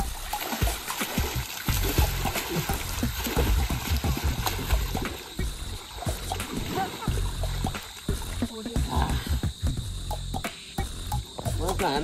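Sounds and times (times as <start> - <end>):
pool water splashing: 0.0 - 9.6.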